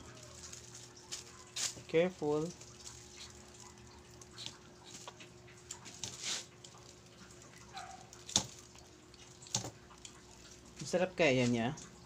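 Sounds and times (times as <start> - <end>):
plastic bag rustling: 0.0 - 9.8
scraping of peeling: 2.7 - 8.8.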